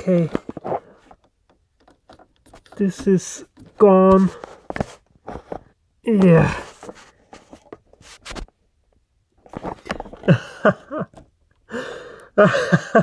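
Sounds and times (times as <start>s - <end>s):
clicks and rustles of wiring: 0.0s - 10.3s
man's wordless vocal sounds: 6.0s - 6.8s.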